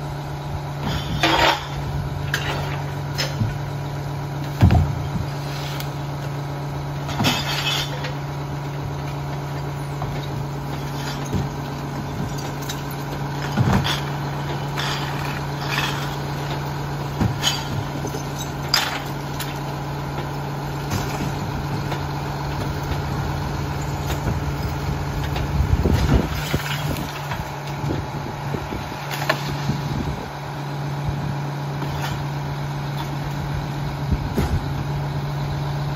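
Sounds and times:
garbage truck diesel engine idling: 0.0 - 35.9
trash cans banging against hopper: 4.5 - 5.4, 9.2 - 27.5.

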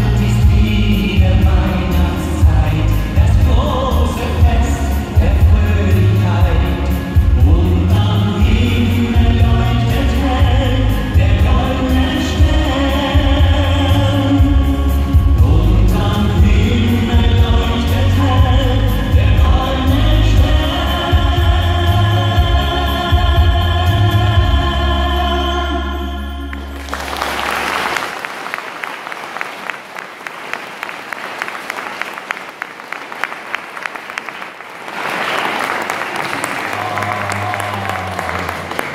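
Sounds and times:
backing music with deep bass: 0.0 - 27.5
audience applauding: 26.5 - 38.9.

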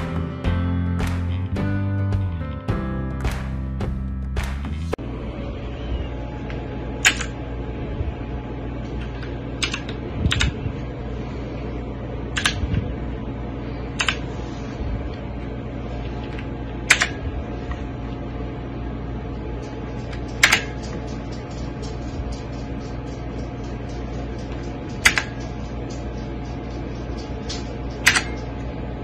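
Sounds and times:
steady low hum: 0.0 - 29.0
keyboard key clicks: 9.6 - 10.5, 14.0 - 14.2.

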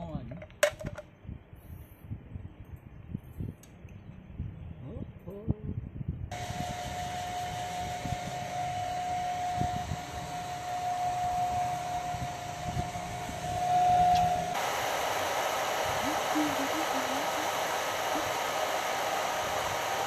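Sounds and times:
hair dryer blowing: 6.3 - 20.0
hair dryer whine: 6.3 - 20.0.

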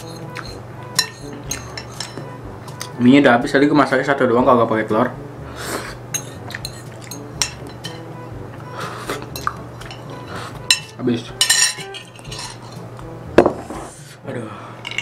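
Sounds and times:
fork clinking against a bowl: 0.0 - 2.2, 6.1 - 8.0, 9.2 - 12.8.

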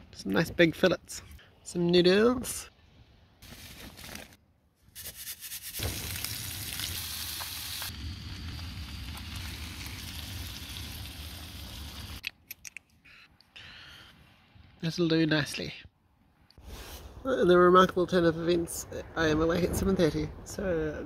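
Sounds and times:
fish sizzling in oil: 5.0 - 12.2.

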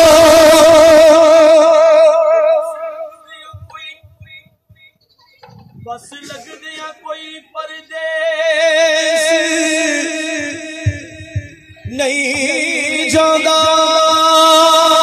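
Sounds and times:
man singing unaccompanied: 0.0 - 5.0, 5.7 - 15.0
low thuds: 10.2 - 14.0.

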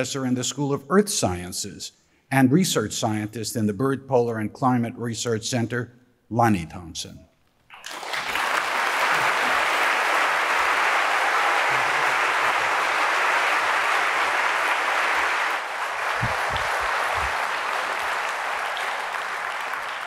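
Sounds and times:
audience applauding: 7.7 - 20.0.

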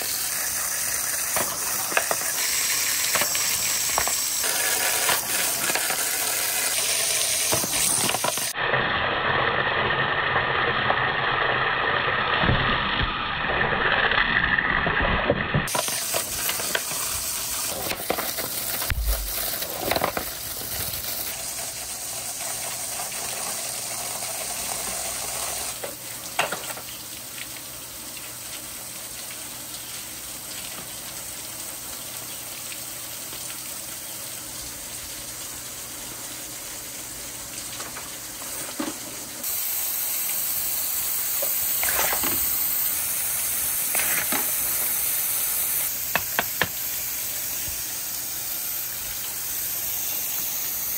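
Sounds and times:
water rushing down gutters: 0.0 - 50.9
wooden balls knocking on gutters: 46.1 - 46.8.

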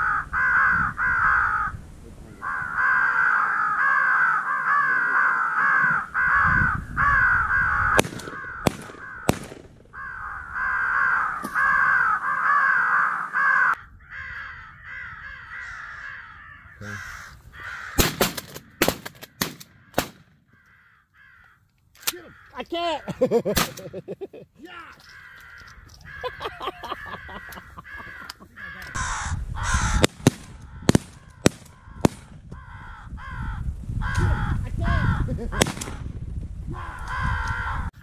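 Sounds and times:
crows cawing: 0.0 - 35.3, 36.7 - 38.0
sharp cracks: 7.9 - 10.0, 17.9 - 20.8, 21.4 - 22.6, 23.5 - 24.0, 29.9 - 32.6, 35.6 - 36.2.

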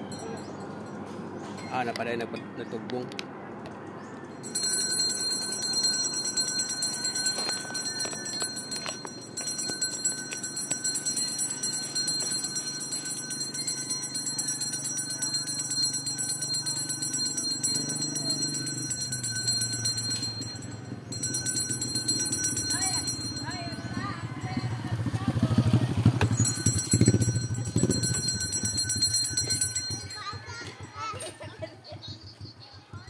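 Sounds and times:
handbell ringing rapidly: 4.4 - 24.8, 26.2 - 31.2.

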